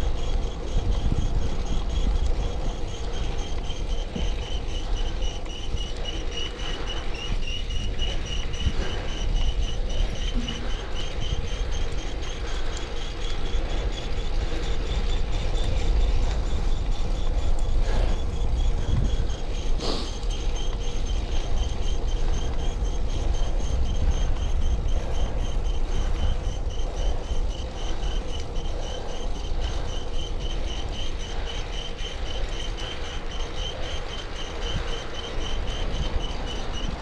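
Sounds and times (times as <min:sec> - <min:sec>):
bike chain whirring and grinding: 0:00.0 - 0:37.0.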